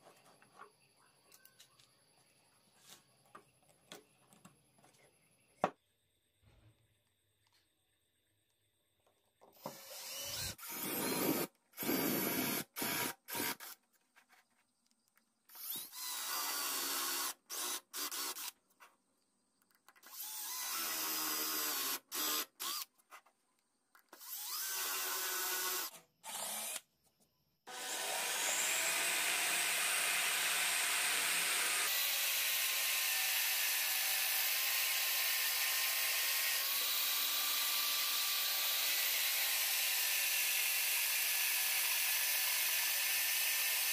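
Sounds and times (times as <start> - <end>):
power drill boring into wood: 9.6 - 13.8, 15.5 - 18.6, 20.0 - 22.9, 24.1 - 26.8, 27.7 - 43.9.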